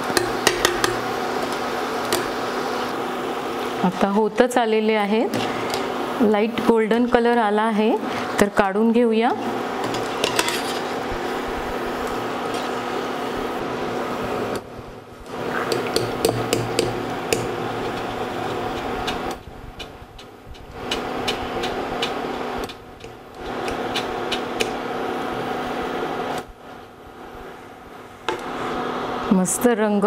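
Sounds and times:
metal strainer tapping a pan: 0.0s - 1.1s
electric hum of cooktop: 0.0s - 30.0s.

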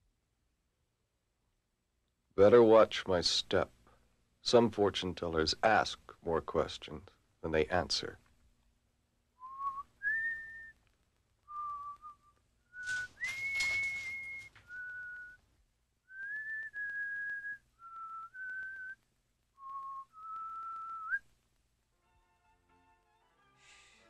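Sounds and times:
person whistling a slow tune: 9.4s - 10.8s, 11.5s - 15.4s, 16.1s - 19.0s, 19.6s - 21.2s
rustling rattling noise: 12.8s - 15.2s.

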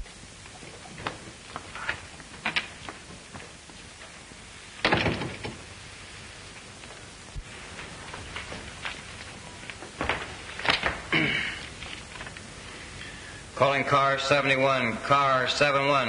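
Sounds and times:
film soundtrack hiss: 0.0s - 16.0s
door shutting with a thud: 4.8s - 5.6s.

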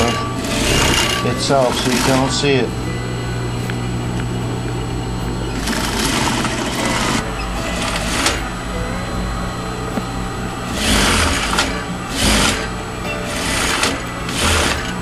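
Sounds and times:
sewing machine running: 0.0s - 2.9s, 5.4s - 9.1s, 9.8s - 15.0s.

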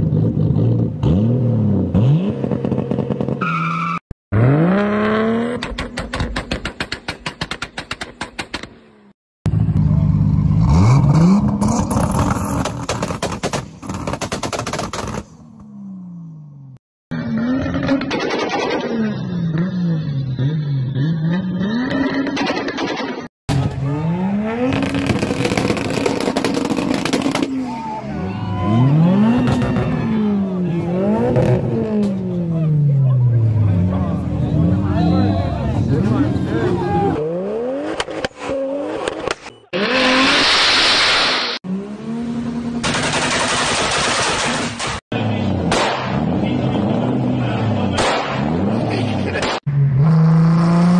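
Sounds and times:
exhaust pops and crackles: 11.6s - 15.4s, 24.7s - 27.5s, 42.8s - 45.0s
car engine revving on limiter: 23.5s - 27.6s
car engine revving: 23.5s - 50.9s.

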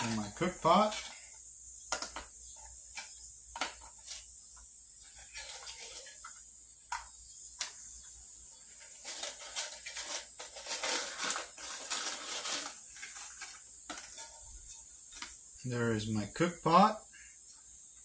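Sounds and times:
foil crinkling and rustling: 0.0s - 1.3s, 8.7s - 15.4s.

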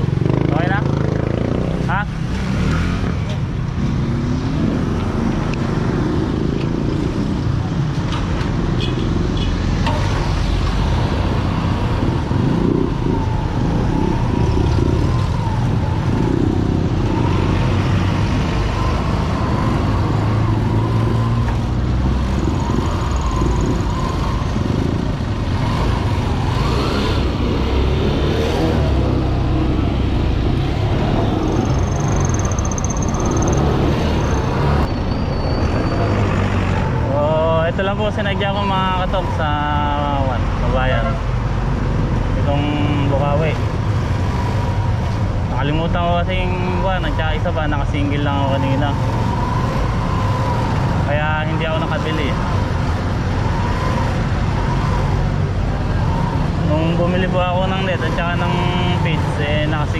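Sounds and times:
road and motion rumble: 0.0s - 59.9s.

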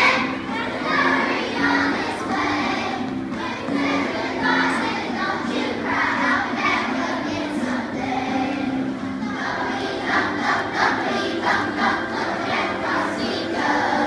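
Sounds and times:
children's choir singing a carol: 0.0s - 14.0s.

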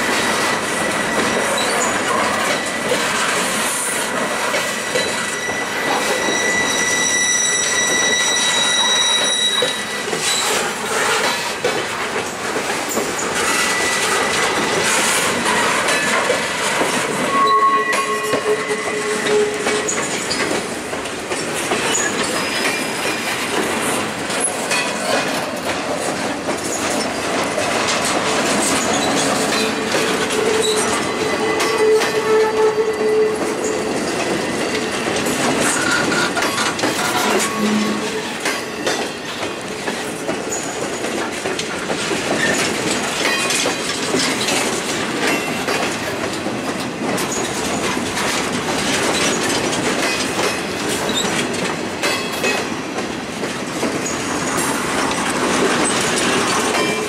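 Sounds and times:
clickety-clack over rail joints: 0.0s - 57.0s
train wheels rumbling on rails: 0.0s - 57.0s
thin wheel squeals: 5.0s - 10.4s.

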